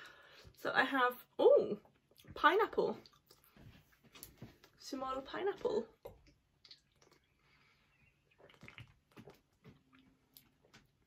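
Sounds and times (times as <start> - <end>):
sipping and swallowing drink: 6.2 - 10.6.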